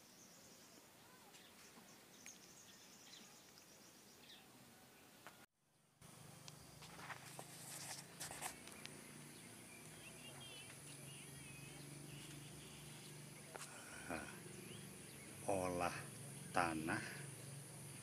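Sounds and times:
bird chirps: 0:00.0 - 0:04.5, 0:08.2 - 0:18.0
high insect drone: 0:06.1 - 0:18.0.

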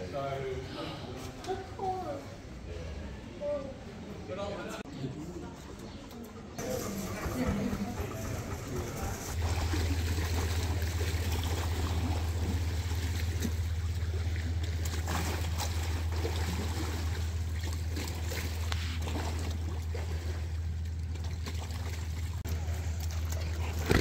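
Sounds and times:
steady low hum: 0:06.3 - 0:24.0
dog splashing in water: 0:09.2 - 0:24.0
small waves lapping on stone: 0:09.2 - 0:24.0.

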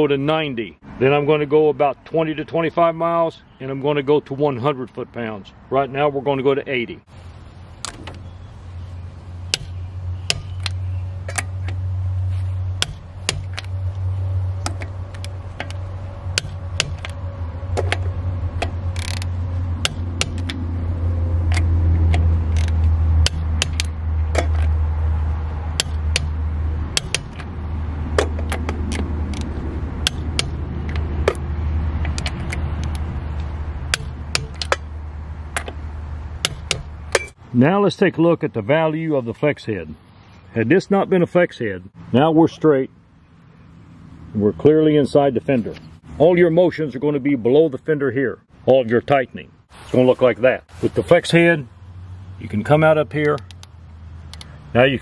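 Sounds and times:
steady low hum: 0:07.0 - 0:37.5
torque wrench ratcheting and clicking: 0:18.6 - 0:20.6.

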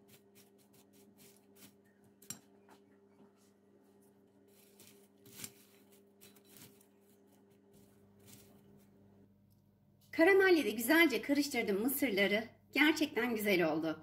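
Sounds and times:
popcorn rustling in glass bowl: 0:03.4 - 0:09.0.

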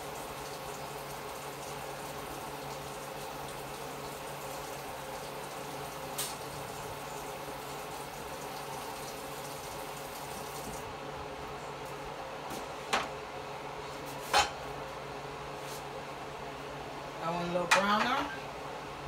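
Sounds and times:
range hood fan humming: 0:00.0 - 0:19.0.

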